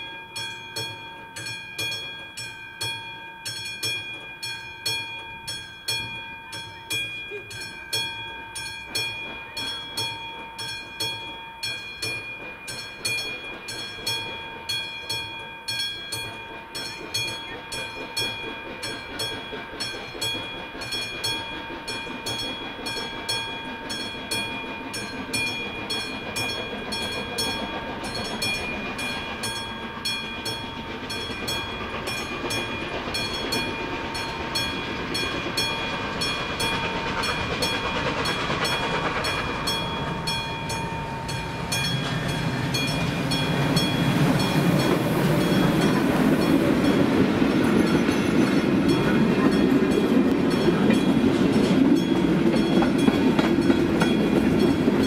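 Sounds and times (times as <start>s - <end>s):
approaching train: 0.0s - 55.0s
level-crossing bell ringing: 0.0s - 55.0s.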